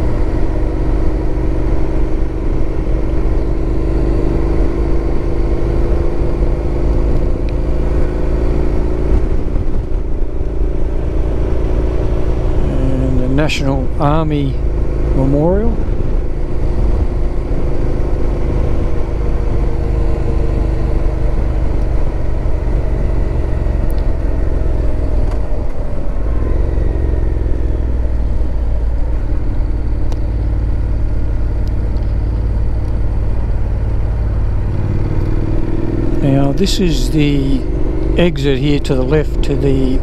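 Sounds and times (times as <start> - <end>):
motorcycle engine running: 0.0 - 40.0.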